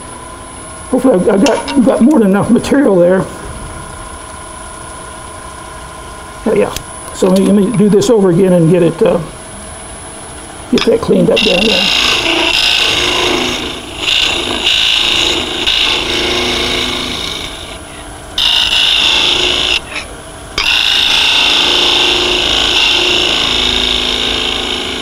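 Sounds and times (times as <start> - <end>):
lathe humming: 6.5 - 25.0
chisel scraping spinning wood: 10.8 - 25.0.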